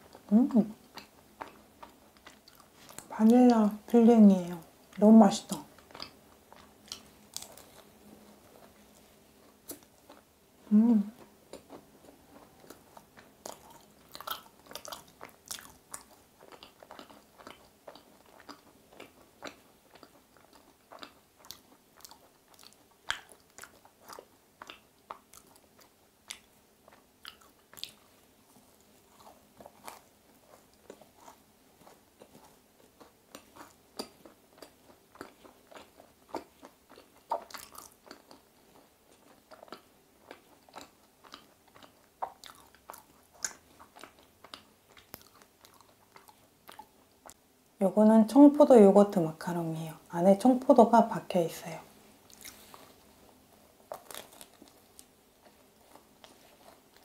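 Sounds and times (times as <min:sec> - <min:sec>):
chewing with wet mouth clicks: 0:00.9 - 0:03.1, 0:04.9 - 0:07.9, 0:11.2 - 0:28.2, 0:28.8 - 0:47.4
small crunches of chewing: 0:00.9 - 0:03.1, 0:05.5 - 0:10.3, 0:11.2 - 0:47.4, 0:52.2 - 0:57.0.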